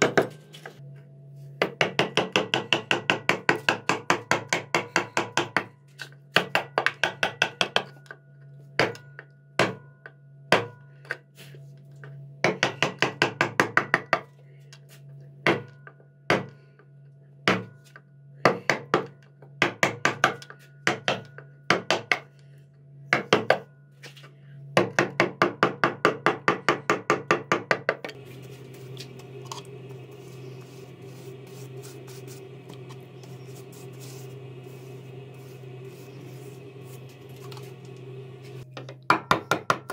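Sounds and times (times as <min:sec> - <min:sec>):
brush brushing finish: 0:28.2 - 0:38.6.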